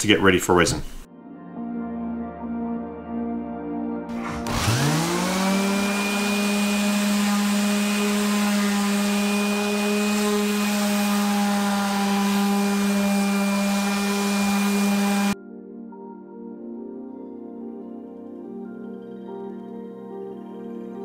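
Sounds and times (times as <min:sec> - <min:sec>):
orbital sander running: 0:04.1 - 0:15.4.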